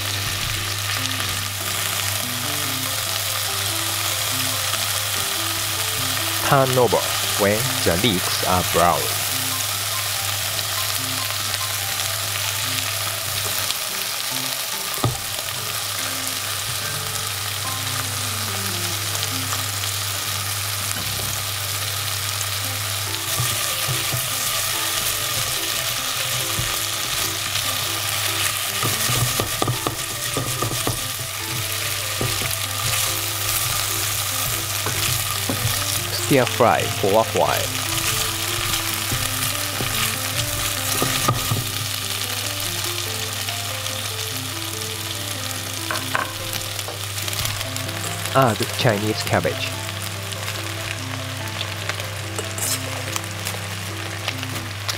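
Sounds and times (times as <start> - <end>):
food sizzling in oil: 0.0 - 54.9
chopsticks clicking and scraping pot: 23.3 - 42.0, 52.3 - 53.2.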